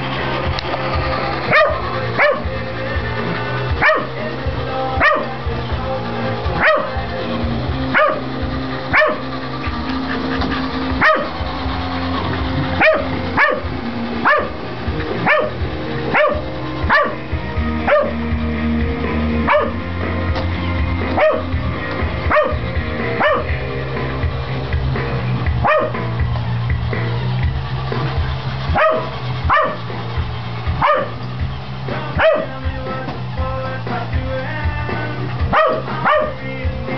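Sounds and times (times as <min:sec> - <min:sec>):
rock music: 0:00.0 - 0:36.9
dog barking: 0:01.5 - 0:02.5, 0:03.8 - 0:04.1, 0:05.0 - 0:05.2, 0:06.6 - 0:07.0, 0:07.9 - 0:08.2, 0:08.9 - 0:09.2, 0:11.0 - 0:11.3, 0:12.8 - 0:13.6, 0:14.2 - 0:14.6, 0:15.2 - 0:17.2, 0:17.9 - 0:18.2, 0:19.5 - 0:19.8, 0:21.2 - 0:21.5, 0:22.3 - 0:22.6, 0:23.2 - 0:23.5, 0:25.6 - 0:26.0, 0:28.7 - 0:29.8, 0:30.8 - 0:31.2, 0:32.2 - 0:32.5, 0:35.5 - 0:36.4.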